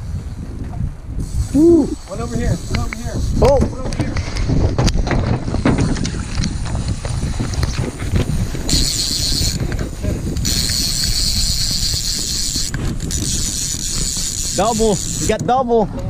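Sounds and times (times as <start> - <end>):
wind buffeting microphone: 0.0 - 16.0
high hiss: 1.2 - 3.6
scattered clicks: 2.6 - 5.0.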